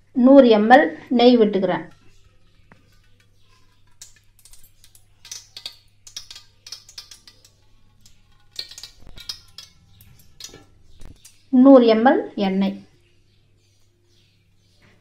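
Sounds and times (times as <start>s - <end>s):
ghee crackling in pot: 1.8s - 11.6s.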